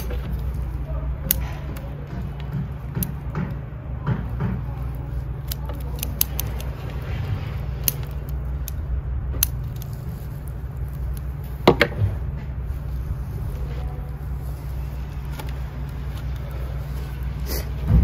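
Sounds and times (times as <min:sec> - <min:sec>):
hand tools clicking: 0:00.0 - 0:08.8
root ball being handled: 0:00.0 - 0:18.0
steady low hum: 0:00.0 - 0:18.0.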